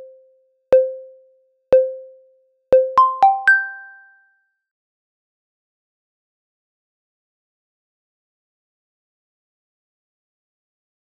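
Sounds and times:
musical logo jingle: 0:02.8 - 0:04.2.

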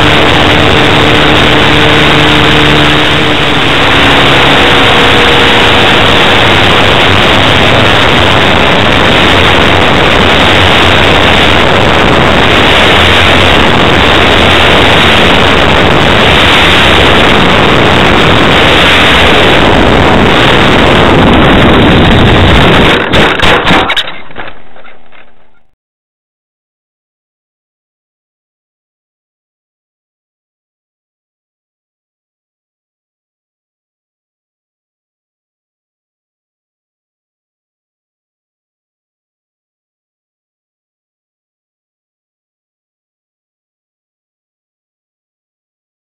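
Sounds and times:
model aircraft engine running: 0:00.0 - 0:25.7
propeller wash and wind: 0:00.0 - 0:25.7.

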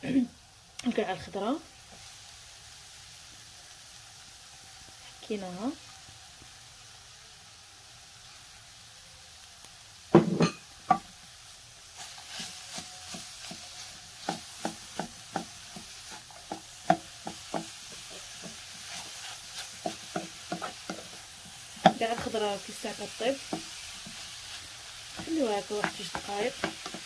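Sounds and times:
vegetables sizzling in oil: 0:00.0 - 0:27.0
spoon knocking against pan: 0:13.1 - 0:18.6, 0:19.8 - 0:21.1, 0:21.8 - 0:22.4, 0:25.2 - 0:27.0.

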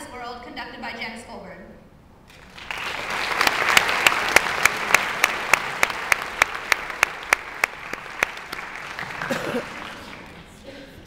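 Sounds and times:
audience applauding: 0:02.3 - 0:11.0.

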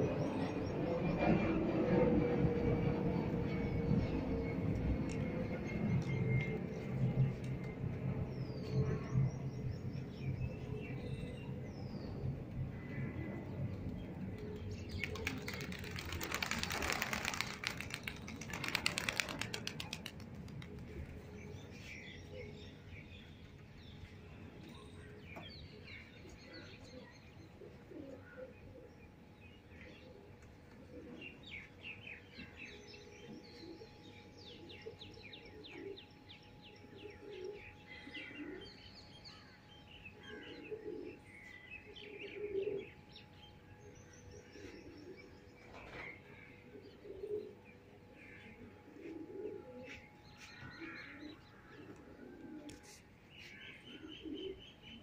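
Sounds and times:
pigeons wing-flapping: 0:14.9 - 0:21.1
low pigeon coos: 0:26.5 - 0:28.9, 0:34.7 - 0:36.1, 0:37.0 - 0:38.7, 0:40.3 - 0:43.0, 0:44.6 - 0:54.8.

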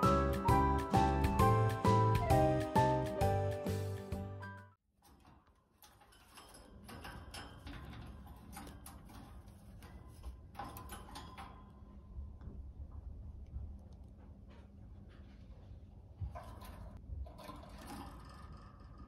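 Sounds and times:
low room hum: 0:05.7 - 0:19.0.

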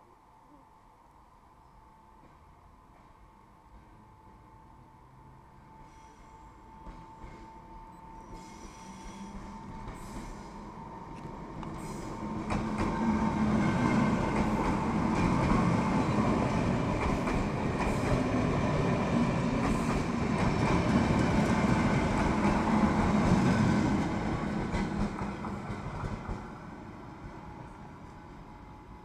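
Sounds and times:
electric train whine: 0:00.0 - 0:29.0
train wheels clacking on rails: 0:06.7 - 0:27.5.

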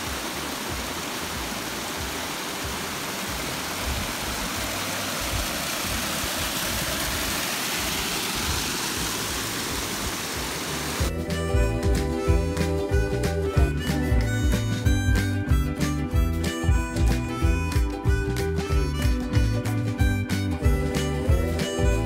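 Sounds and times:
water rushing over boulders: 0:00.0 - 0:11.2.

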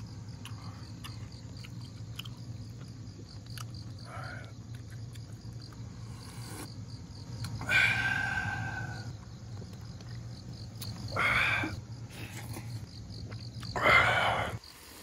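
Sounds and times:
insects chirping: 0:00.0 - 0:15.0
loud breathy sounds: 0:07.6 - 0:09.1, 0:11.1 - 0:12.8, 0:13.8 - 0:15.0.

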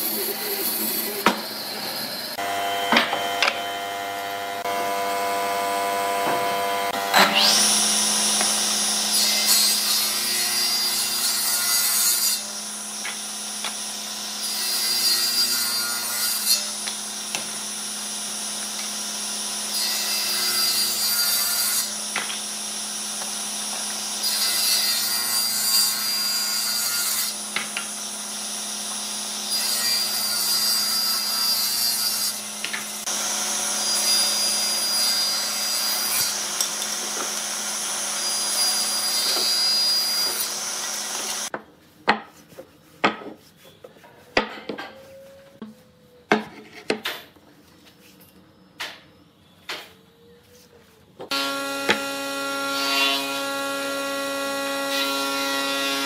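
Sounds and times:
table saw cutting wood: 0:00.0 - 0:41.6, 0:51.3 - 0:56.0.

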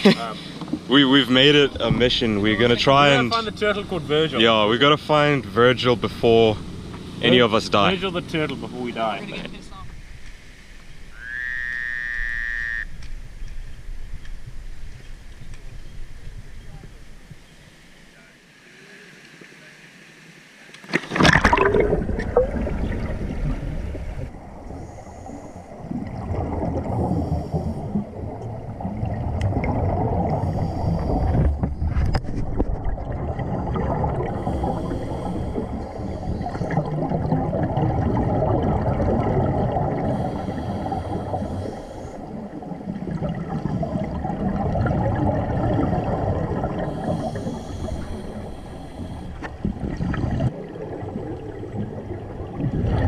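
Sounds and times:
splash into water: 0:20.8 - 0:24.1
underwater regulator bubbles: 0:21.0 - 0:53.0.

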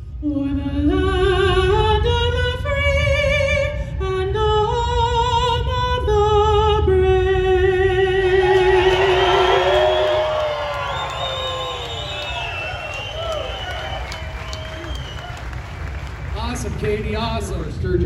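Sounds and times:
crowd cheering and whooping: 0:08.3 - 0:16.3.

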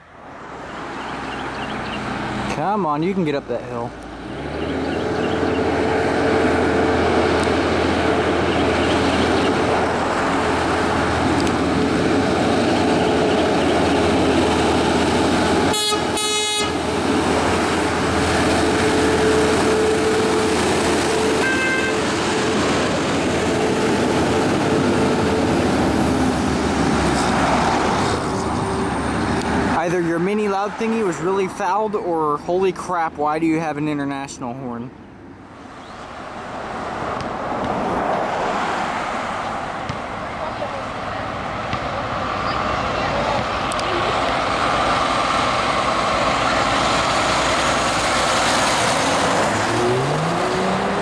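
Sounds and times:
heavy truck engine under load: 0:00.0 - 0:29.8, 0:35.5 - 0:51.0
truck horn honks: 0:15.6 - 0:17.0, 0:18.6 - 0:22.6.

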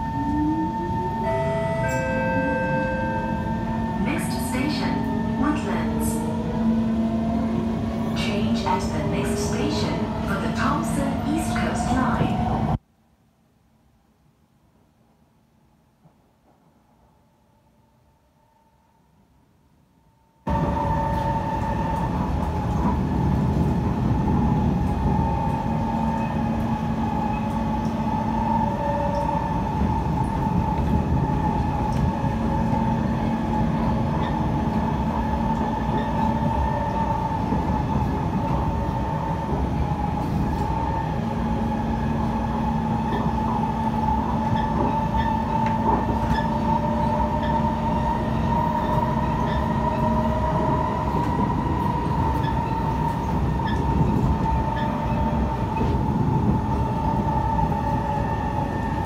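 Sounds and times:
train wheels rumbling on rail: 0:20.5 - 0:59.0.

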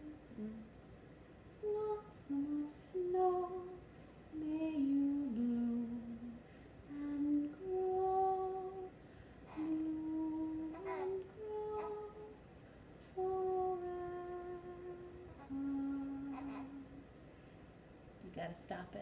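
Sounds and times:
woman humming: 0:00.0 - 0:00.7, 0:04.4 - 0:08.9, 0:09.5 - 0:12.4, 0:13.1 - 0:17.0.

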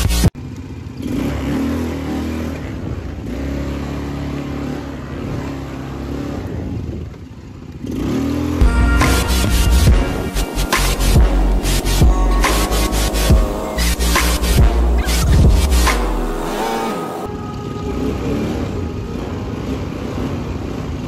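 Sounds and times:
atv engine running: 0:00.0 - 0:17.3
music: 0:08.6 - 0:21.0.

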